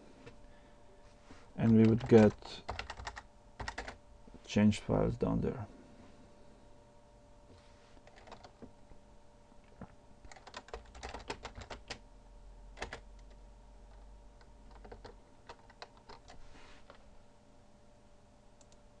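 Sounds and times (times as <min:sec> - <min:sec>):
keyboard typing: 0:01.6 - 0:04.0, 0:08.0 - 0:08.7, 0:10.3 - 0:12.0, 0:12.8 - 0:17.0.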